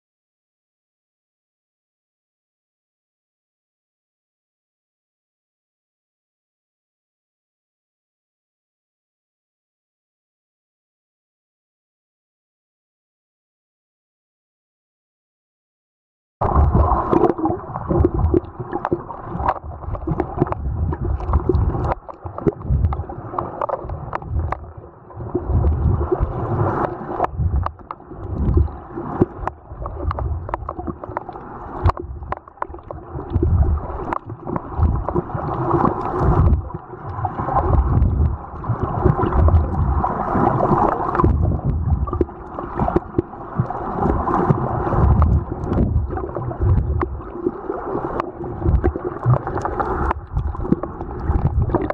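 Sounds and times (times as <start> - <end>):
muffled water sloshing underwater: 16.4 - 51.9.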